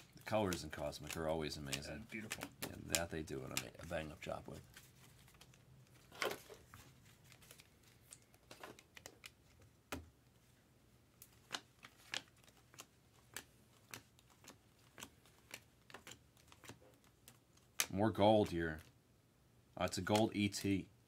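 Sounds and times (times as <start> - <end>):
trading cards clicking and rustling: 0.0 - 10.2, 11.2 - 18.9, 19.8 - 20.8.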